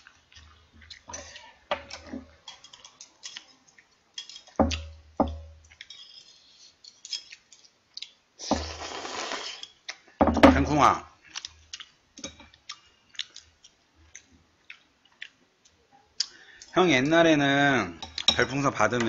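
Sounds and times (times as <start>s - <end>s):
chewing: 0.0s - 4.9s, 5.6s - 10.2s, 11.2s - 16.8s
slurping noodles: 8.4s - 9.7s
sharp knocks: 10.2s - 10.7s.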